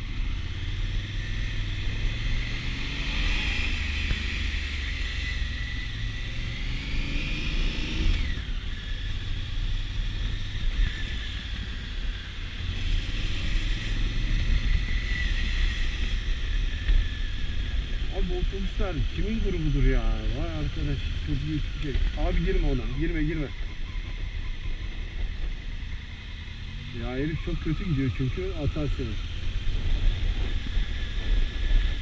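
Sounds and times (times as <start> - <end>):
motorcycle engine rumbling: 7.7 - 32.0.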